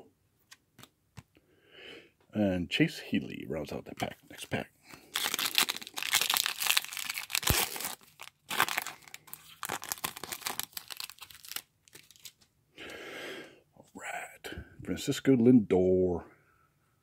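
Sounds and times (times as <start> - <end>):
foil wrapper tearing and crinkling: 5.0 - 12.4.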